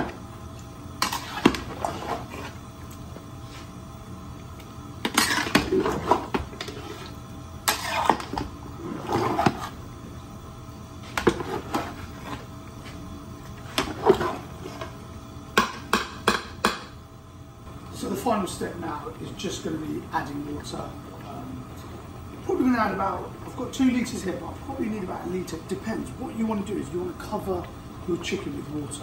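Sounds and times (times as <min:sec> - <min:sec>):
steady hum: 0:00.0 - 0:29.0
spatula scraping pot bottom: 0:05.1 - 0:09.8.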